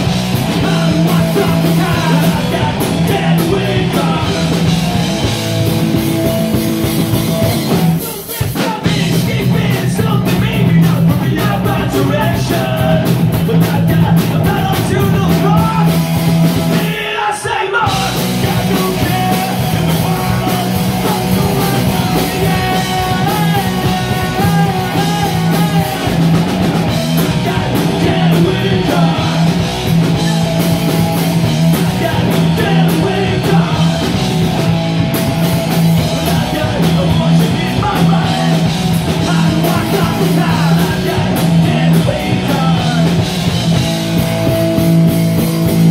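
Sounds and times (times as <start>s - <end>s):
bass guitar: 0.0s - 17.2s, 17.8s - 45.9s
electric guitar: 0.0s - 17.2s, 17.8s - 45.9s
drum kit: 0.0s - 45.9s
person singing: 0.5s - 5.1s, 16.7s - 30.5s, 31.1s - 34.3s, 35.9s - 43.4s.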